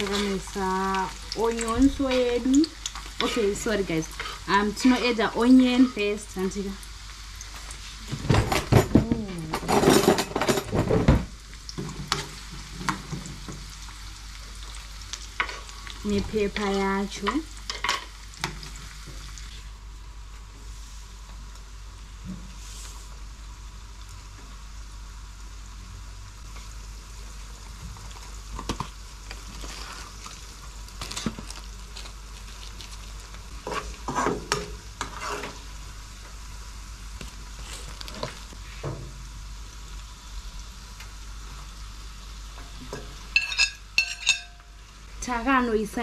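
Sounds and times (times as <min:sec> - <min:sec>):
onions sizzling in a frying pan: 0:00.0 - 0:46.0
spatula scraping a pan: 0:33.6 - 0:35.6
sharp clinks of a plate: 0:43.4 - 0:44.7.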